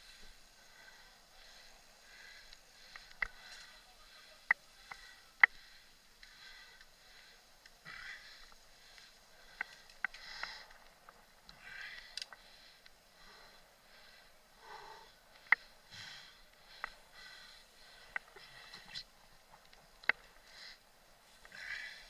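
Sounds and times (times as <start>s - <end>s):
person breathing hard: 0.0s - 19.2s, 20.1s - 22.0s
bike clicking and rattling: 0.1s - 14.4s.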